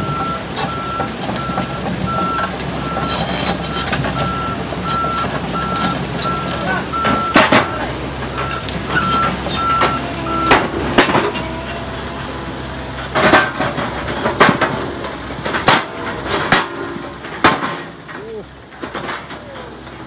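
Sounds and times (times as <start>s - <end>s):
reversing alarm beeping: 0.0s - 11.4s
diesel vehicle engine running: 0.0s - 20.0s
loud metal knocks and clanks: 0.1s - 20.0s.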